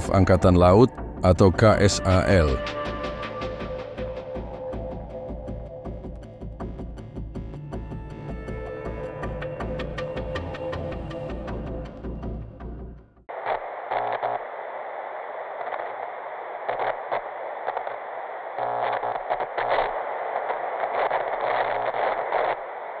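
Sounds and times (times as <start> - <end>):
tv static hiss and crackle: 0.0 - 2.6, 13.3 - 23.0
background music: 0.0 - 13.2.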